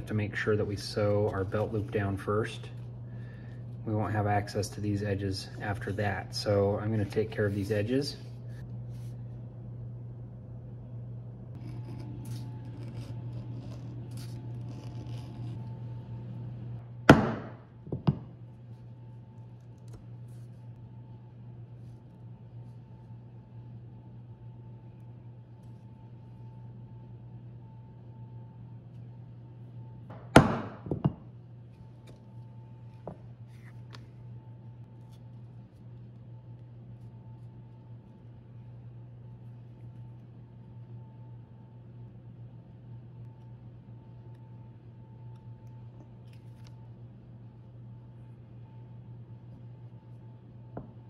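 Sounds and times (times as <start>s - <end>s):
steady low hum: 0.0s - 51.0s
beveler scraping leather: 11.6s - 15.9s
tools knocking on workbench: 30.1s - 31.2s.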